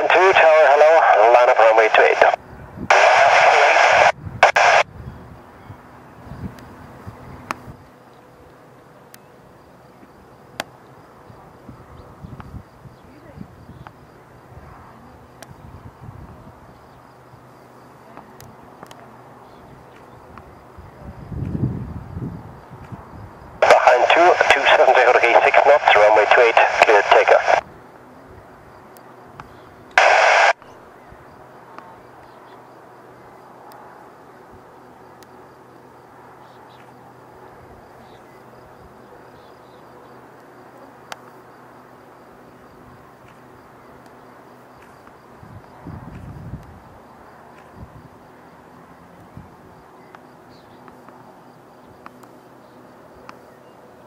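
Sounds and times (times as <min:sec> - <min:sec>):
distant jet engines rumbling: 0:00.0 - 0:04.8, 0:23.6 - 0:27.6
distant jet engines humming: 0:00.0 - 0:21.2, 0:22.0 - 0:54.0
insects chirping: 0:09.0 - 0:54.0.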